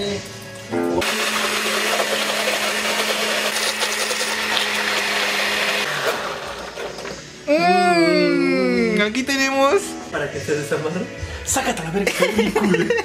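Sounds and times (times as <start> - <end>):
blender whirring: 1.0 - 7.3.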